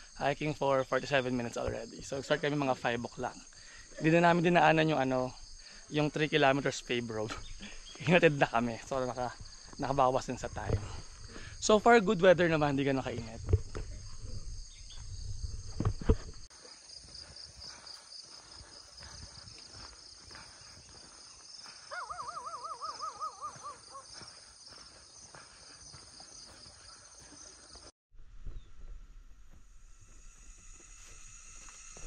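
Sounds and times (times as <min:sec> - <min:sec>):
bird wavering call: 0:21.9 - 0:24.0
insects shrilling: 0:29.8 - 0:32.0.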